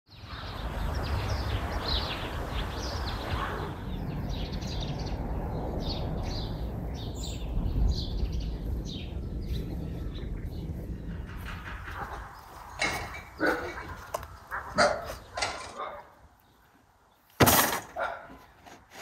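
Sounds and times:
small birds chirping: 0.1 - 17.4
low outdoor rumble: 3.1 - 15.7.

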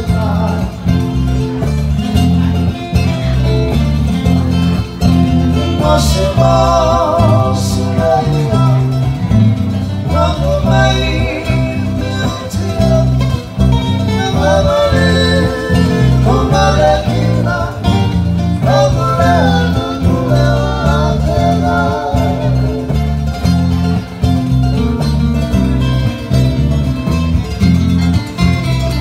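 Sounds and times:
rhythmic bass line: 0.0 - 29.0
strummed ukulele and guitar: 0.0 - 29.0
men singing together: 5.2 - 23.3.

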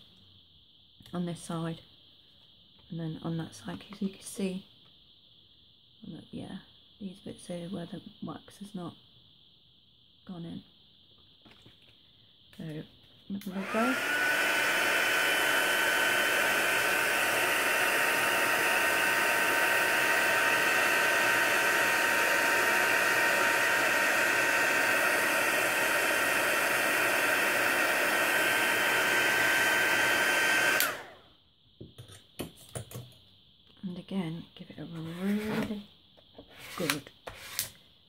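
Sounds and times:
heat gun fan whine: 13.4 - 31.3, 36.4 - 37.8.

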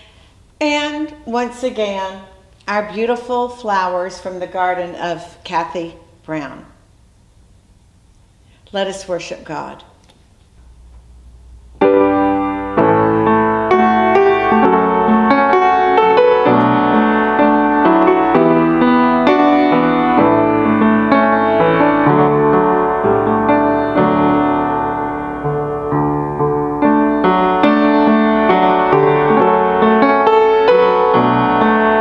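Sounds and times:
piano music: 11.8 - 32.0.

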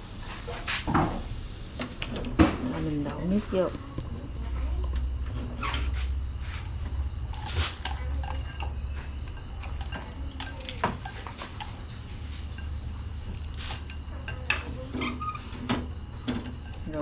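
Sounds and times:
metal pans and utensils clinking: 7.3 - 11.8.

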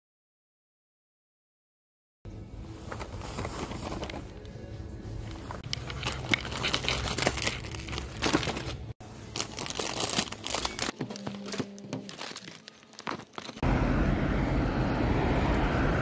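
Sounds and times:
plastic packaging crinkling: 5.6 - 13.6.

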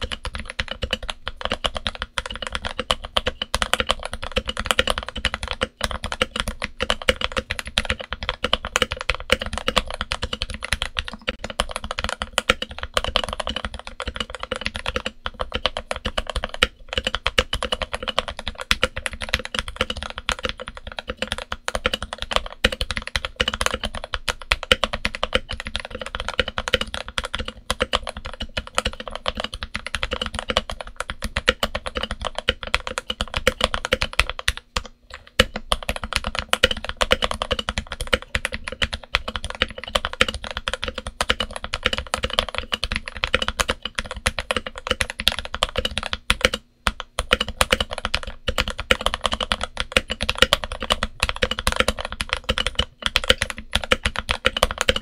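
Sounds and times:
fast mechanical keyboard typing: 0.0 - 55.0.

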